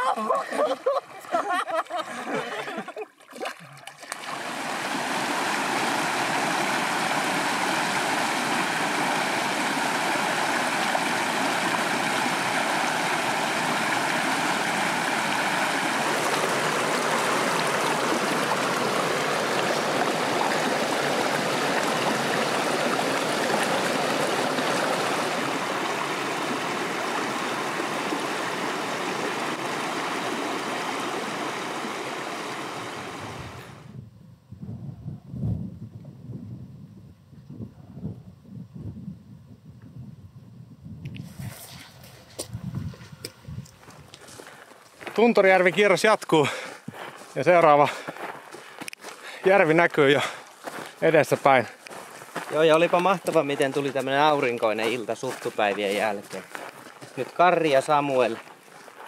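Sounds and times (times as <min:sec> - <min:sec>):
stream gurgling over rocks: 0:00.0 - 0:33.9, 0:52.5 - 0:59.0.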